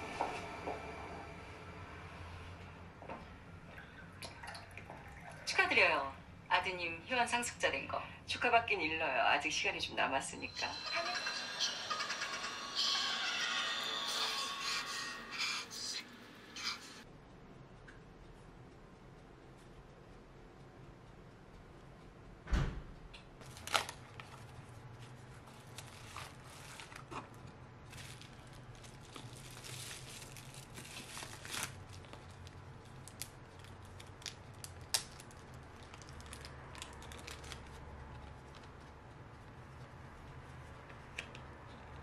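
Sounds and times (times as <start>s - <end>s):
thump: 22.5s - 23.0s
bubble wrap crinkling: 23.4s - 39.9s.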